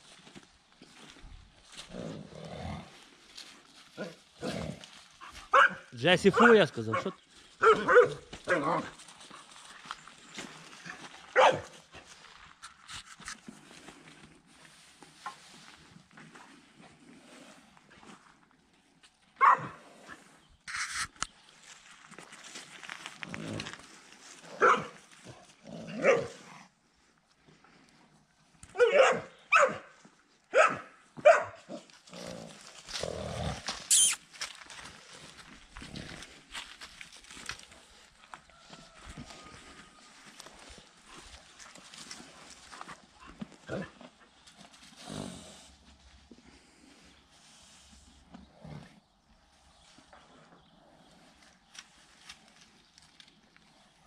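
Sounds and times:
dog barking: 5.5 - 8.9, 11.4 - 11.8, 19.4 - 19.8, 24.6 - 25.0, 26.0 - 26.4, 28.7 - 31.7.

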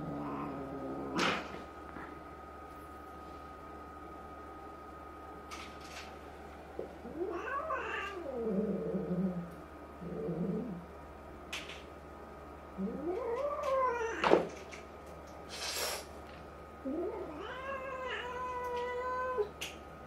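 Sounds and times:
cat growling: 0.0 - 2.2, 7.0 - 10.9, 12.8 - 14.3.

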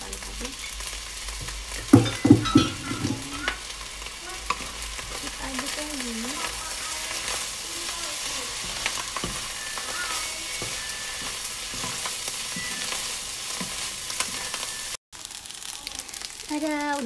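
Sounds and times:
rice sizzling in a wok: 0.0 - 17.0
spatula scraping: 4.4 - 14.8.

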